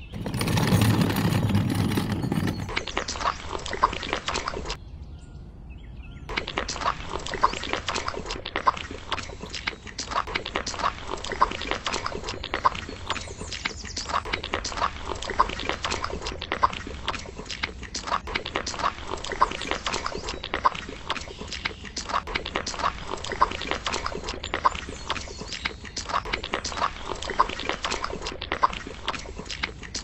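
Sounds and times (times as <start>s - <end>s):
small shovel scraping wet cement: 0.0s - 4.8s.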